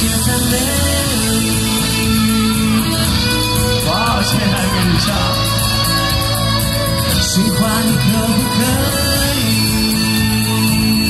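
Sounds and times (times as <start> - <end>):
instrumental accompaniment: 0.0 - 11.0
man singing into a microphone: 0.0 - 11.0.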